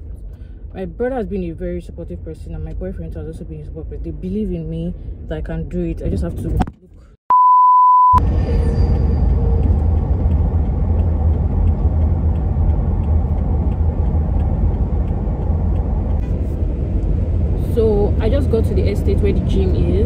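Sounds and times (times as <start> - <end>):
electronic beep tone: 7.3 - 9.0
car driving rumble inside cabin: 8.2 - 20.0
faint regular ticking: 9.2 - 16.2.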